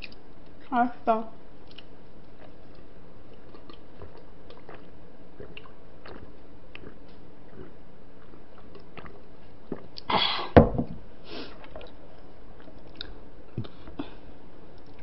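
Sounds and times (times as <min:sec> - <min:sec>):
chewing and eating clicks: 0:00.0 - 0:00.7, 0:01.6 - 0:10.1, 0:12.6 - 0:13.8
glass set down on wooden table: 0:10.6 - 0:11.0.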